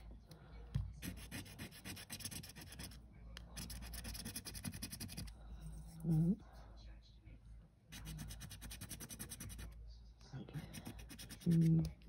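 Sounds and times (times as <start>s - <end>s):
scratchcard being scratched: 1.0s - 3.0s, 3.6s - 5.2s, 8.0s - 9.7s, 10.8s - 11.8s.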